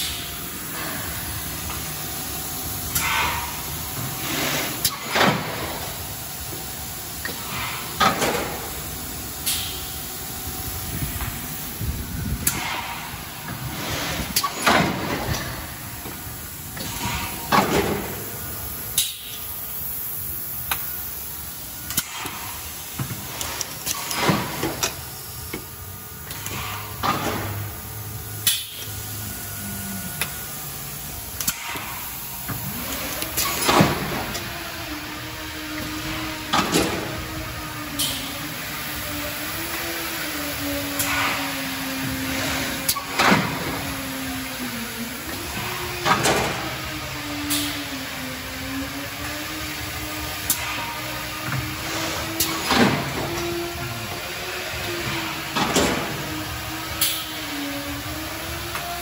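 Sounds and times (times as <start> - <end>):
machine hissing and knocking: 0.0 - 59.0
steady machine hum: 0.0 - 59.0
motor whine: 13.2 - 59.0.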